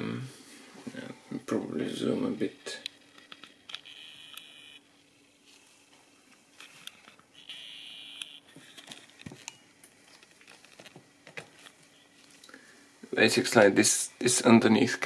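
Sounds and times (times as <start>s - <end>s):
low steady hum: 0.0s - 15.0s
camera zoom motor whine: 3.7s - 4.9s, 6.7s - 9.0s.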